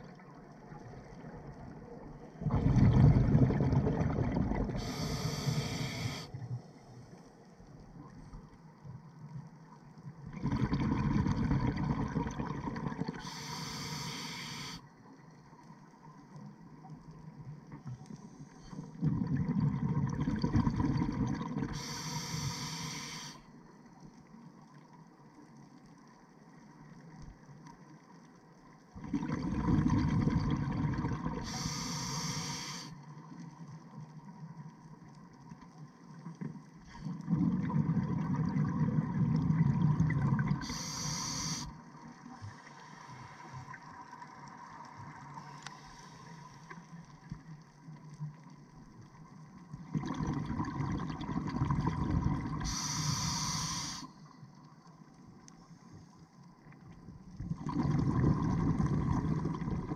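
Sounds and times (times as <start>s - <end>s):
scuba exhaust bubbles: 0.0s - 6.6s, 10.2s - 14.8s, 18.6s - 23.4s, 28.9s - 32.9s, 36.3s - 46.4s, 47.1s - 54.1s, 56.8s - 59.9s
low underwater noise: 0.0s - 59.9s
regulator hiss: 4.8s - 6.3s, 13.2s - 14.8s, 21.8s - 23.4s, 31.4s - 33.0s, 40.6s - 41.8s, 52.6s - 54.2s.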